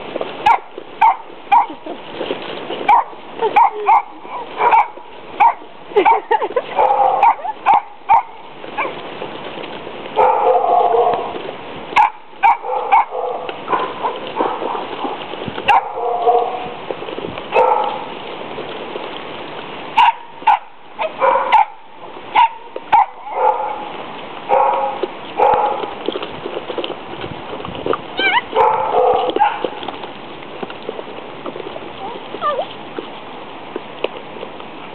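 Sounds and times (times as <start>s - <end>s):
puppies yipping and barking: 2.9s - 9.0s, 28.2s - 29.7s
puppies whimpering: 28.2s - 28.6s.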